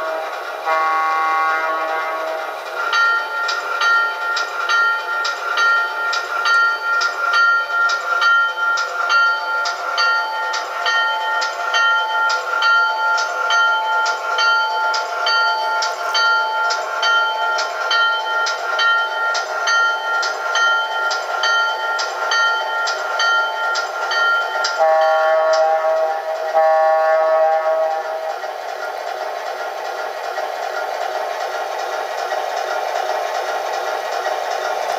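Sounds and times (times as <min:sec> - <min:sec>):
locomotive horn blasts: 0:00.0 - 0:02.5, 0:24.8 - 0:28.3
locomotive bell ringing: 0:00.0 - 0:34.9.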